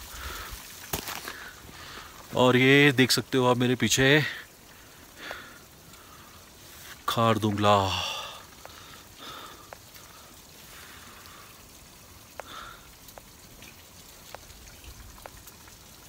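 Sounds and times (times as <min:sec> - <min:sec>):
faint even hiss: 0:00.0 - 0:13.7
small irregular clicks: 0:08.4 - 0:15.8.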